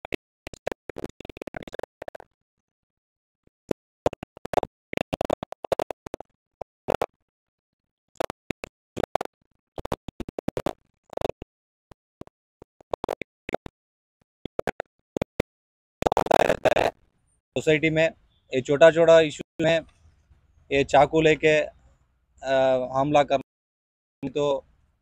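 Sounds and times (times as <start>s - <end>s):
background music with scratching effects: 16.0s - 17.0s.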